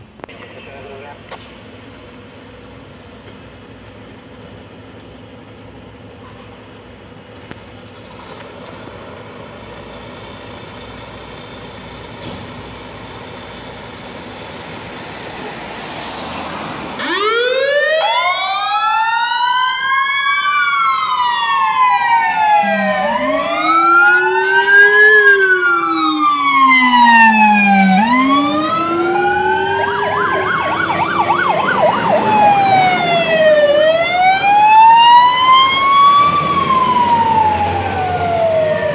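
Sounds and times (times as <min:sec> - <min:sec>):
diesel engines humming: 0:00.0 - 0:38.9
wailing two-tone sirens: 0:16.0 - 0:38.9
fast siren warble: 0:17.0 - 0:38.9.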